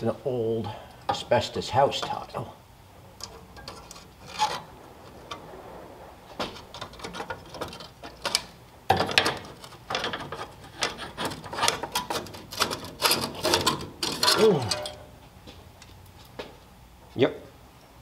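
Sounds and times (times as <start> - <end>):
hand tools clicking and rattling: 6.7 - 15.1.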